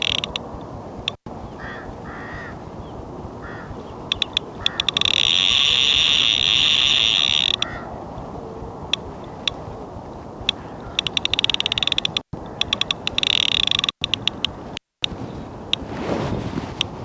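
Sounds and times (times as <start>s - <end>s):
fishing reel drag buzzing: 0.0s - 0.4s, 4.1s - 7.7s, 11.0s - 14.5s
fishing reel drag clicking: 0.0s - 0.4s, 4.1s - 7.7s, 10.5s - 14.5s
wind noise on microphone: 0.0s - 17.0s.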